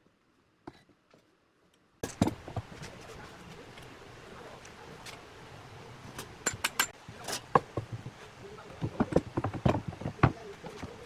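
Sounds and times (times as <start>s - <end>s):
metal clamps clicking and clinking: 6.2s - 7.5s
metal and wood knocks: 6.4s - 11.0s.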